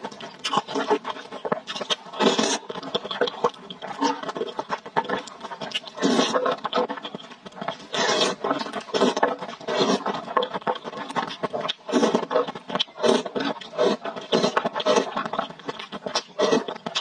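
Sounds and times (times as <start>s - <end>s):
chewing: 0.0s - 17.0s
slurping noodles: 0.0s - 17.0s.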